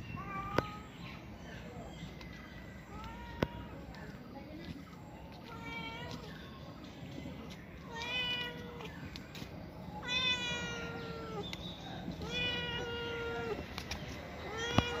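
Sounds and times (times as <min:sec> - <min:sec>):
cat meowing: 0:10.0 - 0:11.4, 0:12.2 - 0:13.6, 0:14.4 - 0:15.0.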